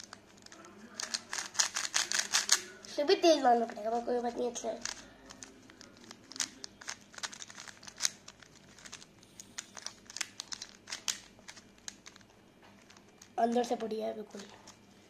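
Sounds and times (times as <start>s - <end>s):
plastic puzzle clicking: 0.0s - 2.6s, 4.5s - 12.2s.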